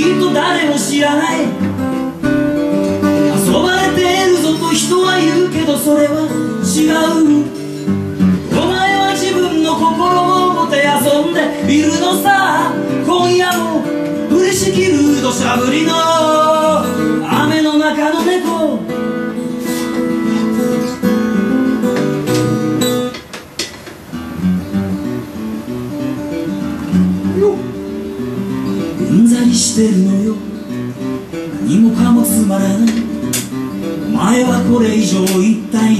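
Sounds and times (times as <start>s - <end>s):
man singing: 0.0s - 2.3s, 3.0s - 19.2s, 28.9s - 35.9s
acoustic guitar strumming: 0.0s - 35.9s.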